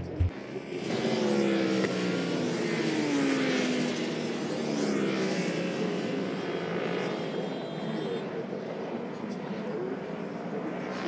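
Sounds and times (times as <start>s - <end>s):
motorcycles passing at speed: 0.3s - 7.3s.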